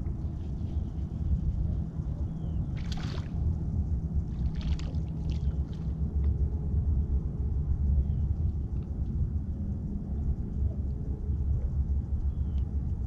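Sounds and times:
boat rumble: 0.0s - 13.0s
water splashing: 2.8s - 3.4s, 4.4s - 5.8s.

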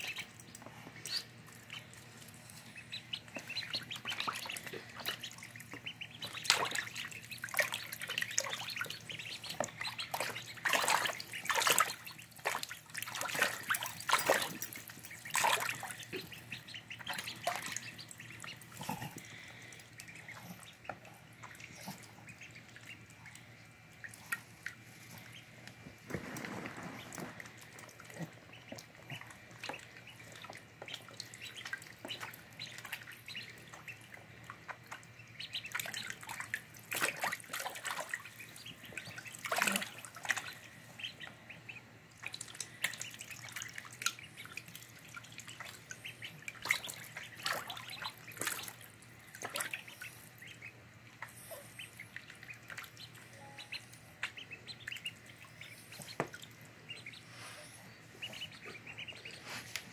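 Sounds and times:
ducklings peeping: 0.0s - 59.9s
splashing in shallow water: 5.9s - 16.3s.

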